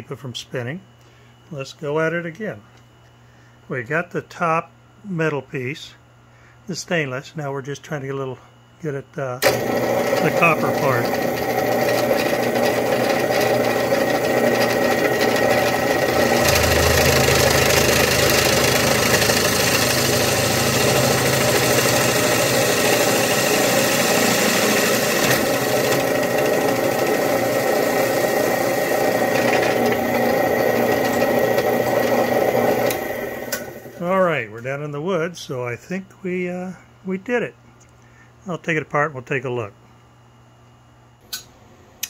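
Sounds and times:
drill press motor hum with rattle: 0:09.4 - 0:34.0
deeper hum: 0:13.5 - 0:23.8.

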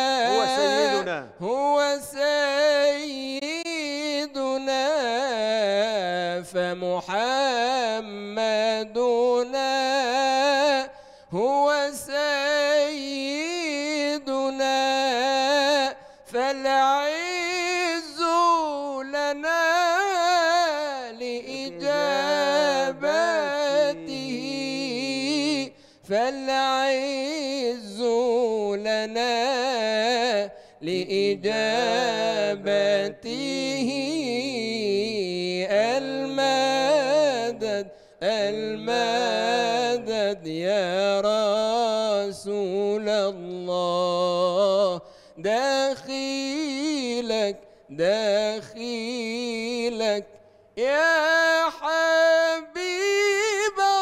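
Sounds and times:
man singing solo praise song: 0:00.0 - 0:54.0
man singing solo: 0:00.1 - 0:01.4, 0:21.6 - 0:24.8.

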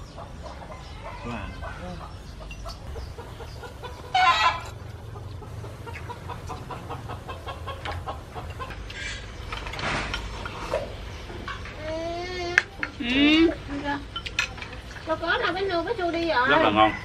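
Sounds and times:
chickens clucking: 0:00.0 - 0:17.0
chicken squawk: 0:03.2 - 0:04.8.

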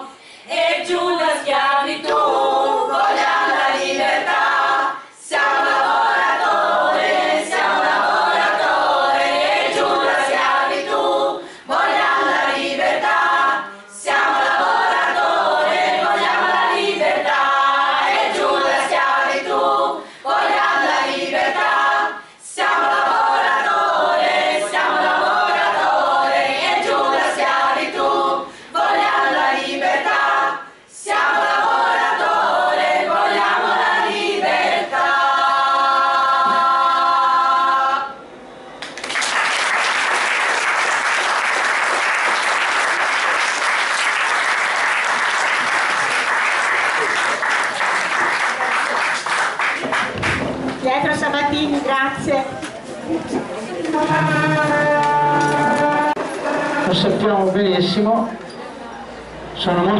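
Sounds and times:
women's choir singing a cappella: 0:00.0 - 0:38.5, 0:53.4 - 0:57.2.

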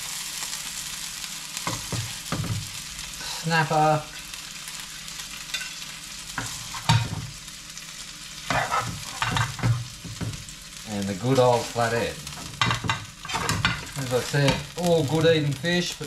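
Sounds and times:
fish sizzling in a frying pan: 0:00.0 - 0:16.0
spatula scraping and knocking pan: 0:01.7 - 0:02.7, 0:06.4 - 0:07.4, 0:08.4 - 0:10.5, 0:11.3 - 0:14.8.

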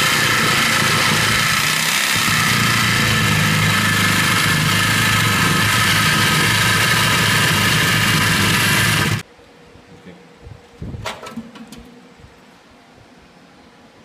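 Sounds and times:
power tool cutting steel: 0:00.0 - 0:09.2.

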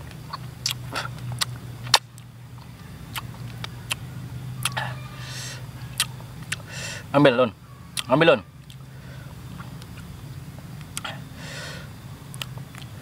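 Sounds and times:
steady low hum: 0:00.0 - 0:13.0
person chewing wetly: 0:00.1 - 0:04.0, 0:04.6 - 0:05.0, 0:05.9 - 0:06.7, 0:08.0 - 0:08.8, 0:09.5 - 0:10.1, 0:10.8 - 0:11.2.

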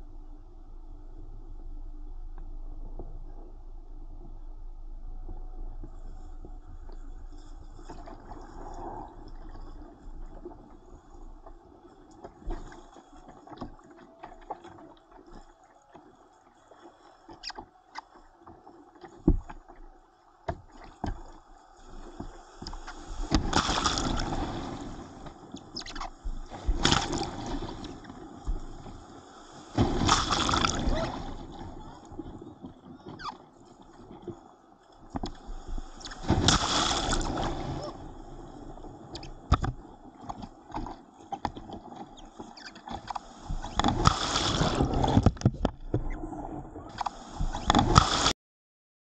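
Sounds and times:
water drips and knocks: 0:17.4 - 0:19.8, 0:39.1 - 0:46.2
whitewater rushing and splashing: 0:21.8 - 0:25.2, 0:26.5 - 0:32.1, 0:35.6 - 0:38.4, 0:43.0 - 0:45.3
breaking water surges: 0:21.8 - 0:33.4, 0:35.2 - 0:38.4, 0:42.2 - 0:46.1.

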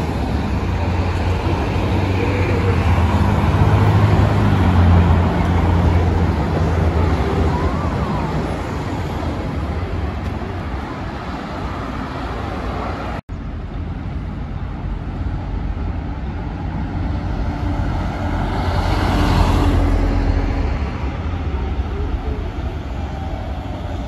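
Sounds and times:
city street traffic: 0:00.0 - 0:24.0.

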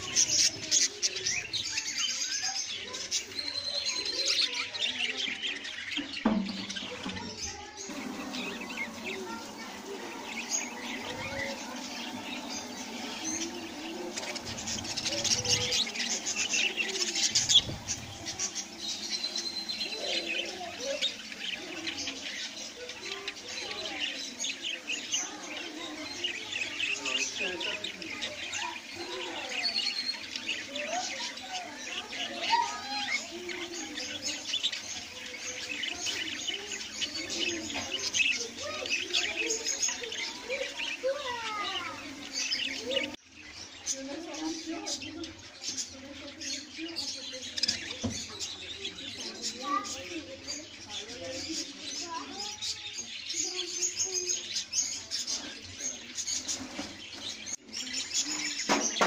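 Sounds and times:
budgerigars chattering: 0:00.0 - 0:43.7.

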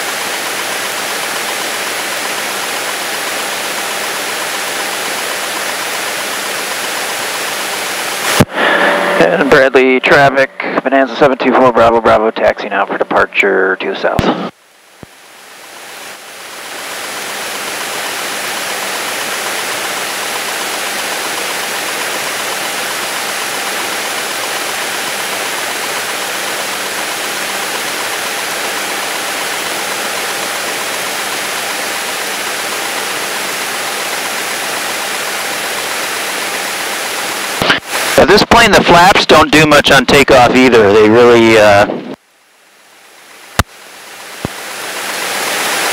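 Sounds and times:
plane engine and propeller drone: 0:00.0 - 0:42.2
intercom hiss: 0:08.2 - 0:14.5, 0:37.3 - 0:42.2.

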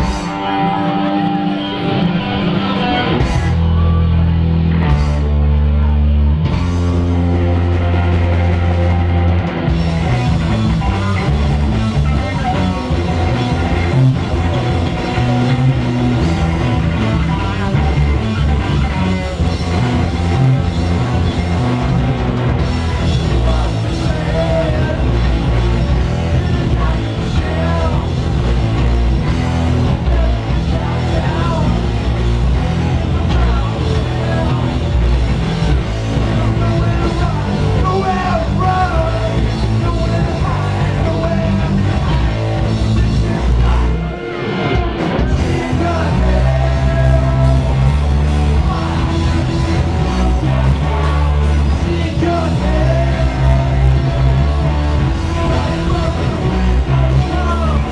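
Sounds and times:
live heavy metal band: 0:00.0 - 0:57.9
person singing: 0:23.0 - 0:28.6, 0:29.5 - 0:35.0, 0:36.1 - 0:44.2, 0:45.2 - 0:57.9.

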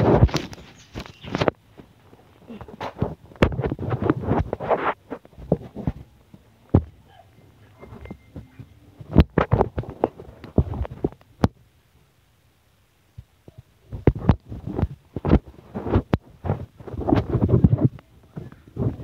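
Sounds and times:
phone handling thumps and rubbing: 0:02.8 - 0:06.1.

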